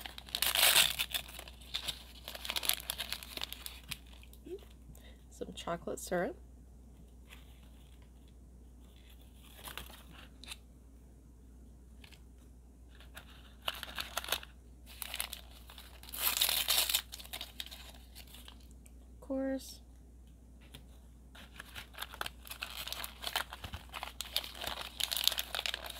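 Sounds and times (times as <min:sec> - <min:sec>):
foil packet tearing: 0:00.0 - 0:04.4, 0:13.2 - 0:18.7, 0:21.5 - 0:25.9
foil packet crinkling: 0:00.0 - 0:04.5, 0:12.9 - 0:18.7, 0:21.4 - 0:25.9.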